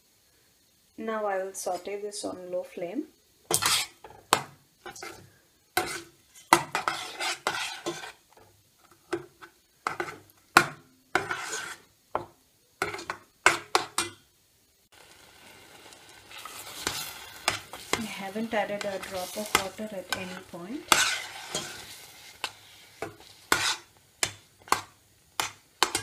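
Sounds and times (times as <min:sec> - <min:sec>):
metal spoon scraping a metal pot: 0:03.5 - 0:04.0, 0:04.9 - 0:05.2, 0:05.8 - 0:08.2, 0:11.2 - 0:11.9, 0:16.4 - 0:26.0.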